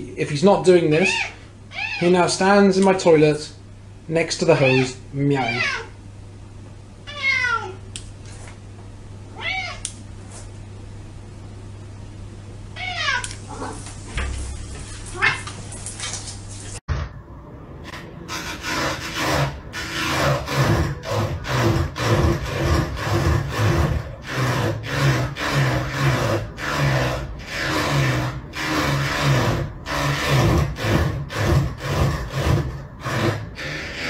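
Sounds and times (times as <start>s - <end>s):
cat paw scraping device: 18.3s - 34.0s.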